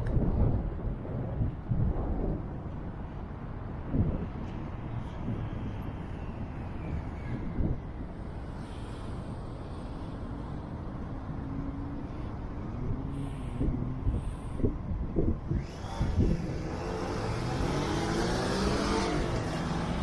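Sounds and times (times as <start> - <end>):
road noise: 0.0 - 20.0
vehicle passing: 15.6 - 20.0.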